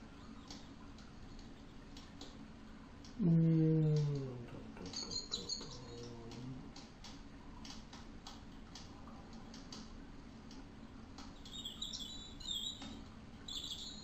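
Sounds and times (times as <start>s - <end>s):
bird chirping: 4.8s - 6.2s, 11.4s - 14.0s.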